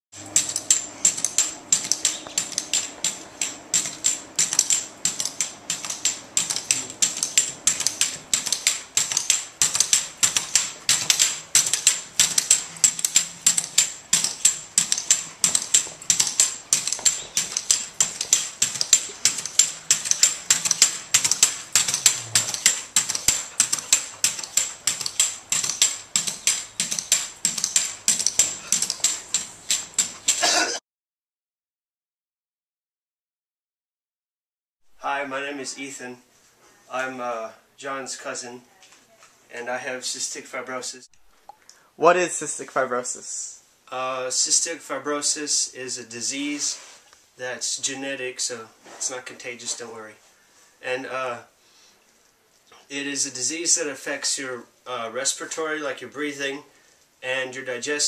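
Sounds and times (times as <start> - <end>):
pogo stick bouncing metallic clacks: 0.3 - 30.5.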